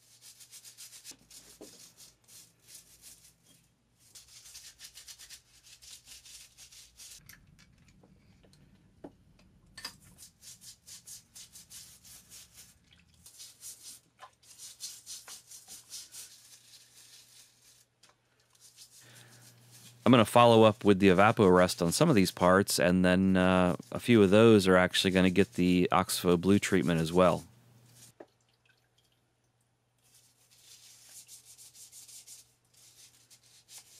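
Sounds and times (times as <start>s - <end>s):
stiff brush scrubbing metal: 18.6s - 28.1s.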